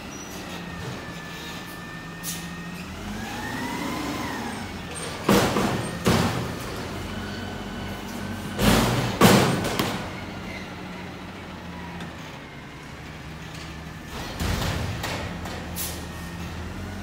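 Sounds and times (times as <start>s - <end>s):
truck engine and hydraulics running: 0.0s - 17.0s
dumpster banging: 4.9s - 7.0s, 8.4s - 10.3s, 14.1s - 16.0s.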